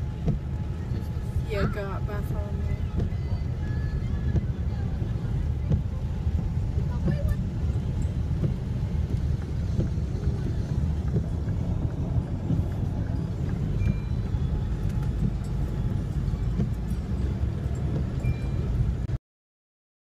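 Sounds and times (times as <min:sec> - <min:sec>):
car driving through water: 0:00.0 - 0:19.1.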